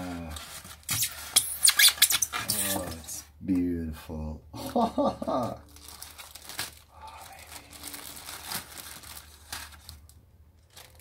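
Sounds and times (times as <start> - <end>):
plastic bag crinkling: 5.6 - 11.0.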